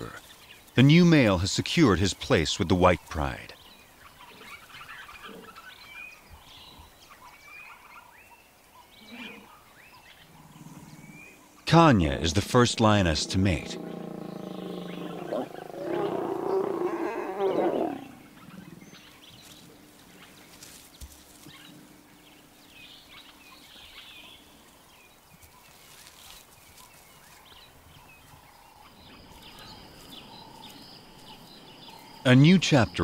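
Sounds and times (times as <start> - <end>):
lions growling and snarling: 10.3 - 19.2.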